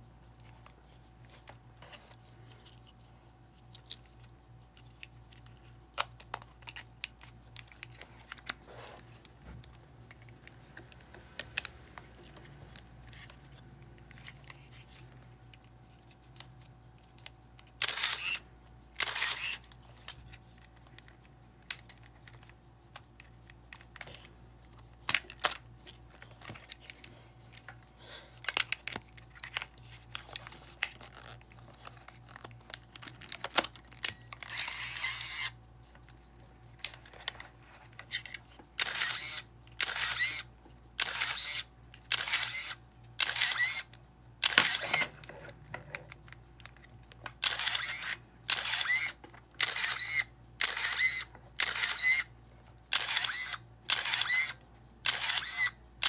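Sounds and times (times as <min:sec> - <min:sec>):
camera motor winder: 0:17.8 - 0:18.4, 0:19.0 - 0:19.8, 0:33.6 - 0:35.6, 0:38.1 - 0:45.2, 0:47.4 - 0:52.3, 0:52.9 - 0:55.8
camera shutter release: 0:17.8 - 0:18.4, 0:19.0 - 0:19.6, 0:34.0 - 0:35.6, 0:38.8 - 0:45.1, 0:47.4 - 0:52.3, 0:52.9 - 0:55.8
camera handling clicks: 0:38.0 - 0:45.1, 0:46.0 - 0:52.2, 0:52.9 - 0:55.7.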